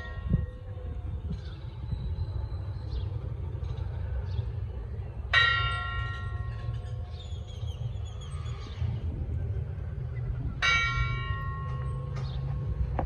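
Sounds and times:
church bell ringing: 0.0s - 1.0s, 5.3s - 7.4s, 10.6s - 12.5s
steady low rumble: 0.0s - 13.0s.

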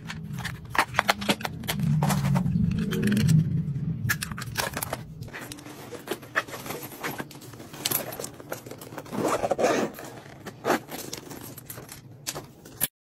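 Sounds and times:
zipper being pulled: 9.0s - 11.2s.

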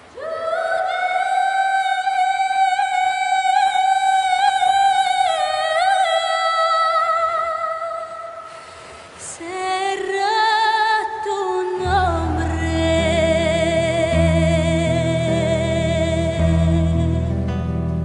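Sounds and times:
song with long held high note: 9.1s - 18.0s.

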